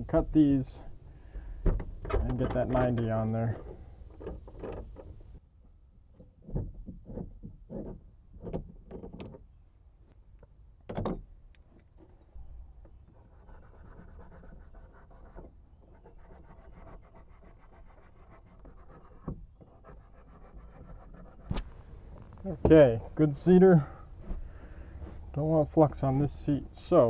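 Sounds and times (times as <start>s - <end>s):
light clicks and knocks: 1.6s - 5.2s.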